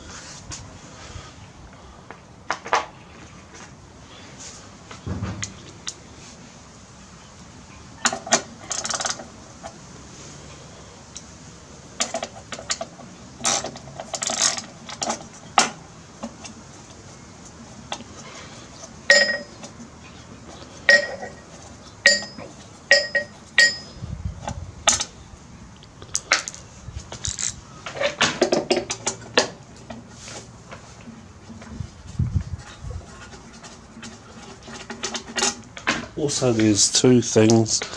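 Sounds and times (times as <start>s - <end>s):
loose bolts clinking: 19.1s - 19.7s, 20.9s - 23.9s.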